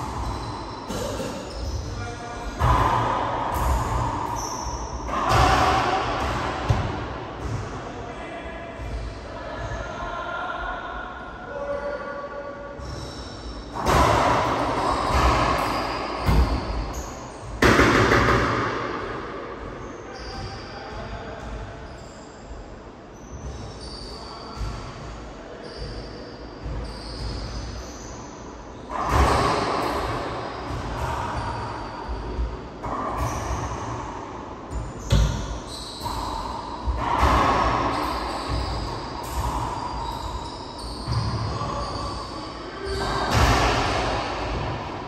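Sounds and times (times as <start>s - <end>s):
racquetball hits echoing: 0.0s - 7.9s, 12.8s - 21.8s, 28.9s - 45.0s.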